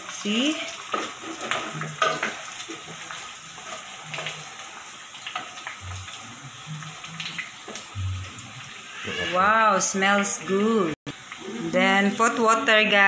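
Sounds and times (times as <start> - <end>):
pork sizzling in a pan: 0.0 - 13.0
wooden spatula scraping a pan: 0.6 - 7.0.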